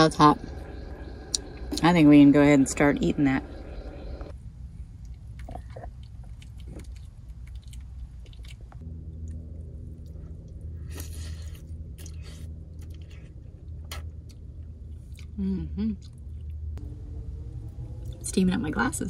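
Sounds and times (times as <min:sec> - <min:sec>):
low steady hum: 0:00.0 - 0:19.0
person chewing: 0:05.1 - 0:16.6.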